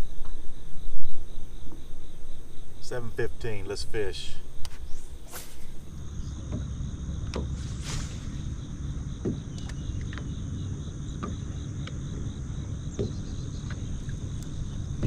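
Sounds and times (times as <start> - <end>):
insects chirping: 0.0 - 15.0
low rumble: 5.0 - 11.0.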